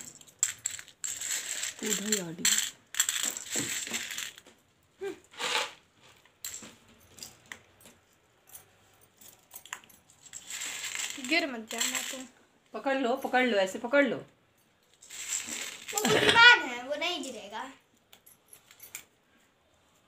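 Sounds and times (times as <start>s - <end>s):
chickpeas clattering on concrete: 0.0s - 4.5s, 9.6s - 12.3s, 15.0s - 16.3s.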